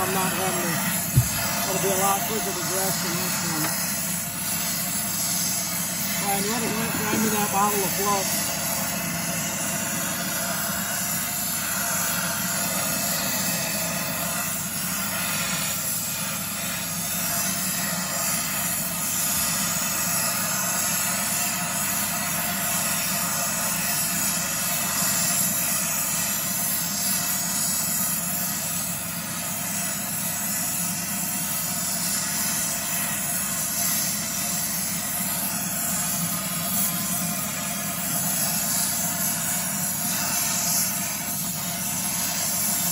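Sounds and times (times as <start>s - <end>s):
torch flame hissing: 0.0s - 42.9s.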